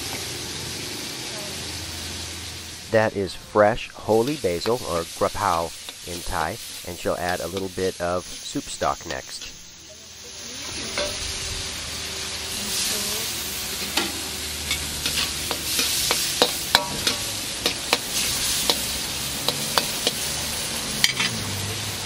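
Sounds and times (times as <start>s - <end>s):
food sizzling in a wok: 0.0s - 22.0s
wok turner scraping wok: 3.8s - 22.0s.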